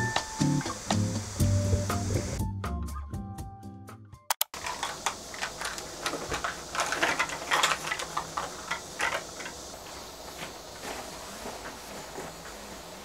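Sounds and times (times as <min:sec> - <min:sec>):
sharp clicks: 0:04.3 - 0:05.9.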